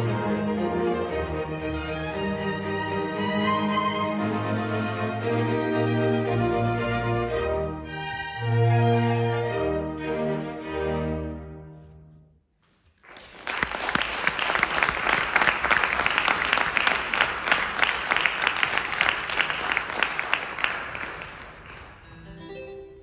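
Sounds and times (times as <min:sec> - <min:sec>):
audience applauding: 0:13.0 - 0:22.3.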